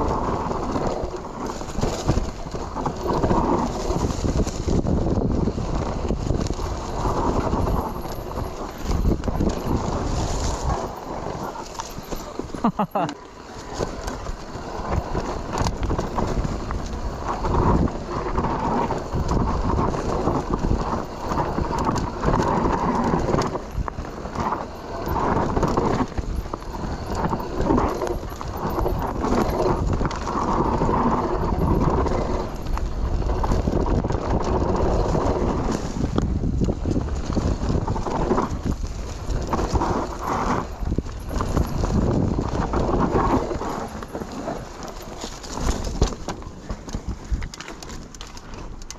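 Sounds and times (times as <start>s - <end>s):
bike knocks and rattles: 0.0s - 48.9s
bike tyres rumbling over dirt: 0.0s - 48.9s
wind buffeting: 0.0s - 48.9s.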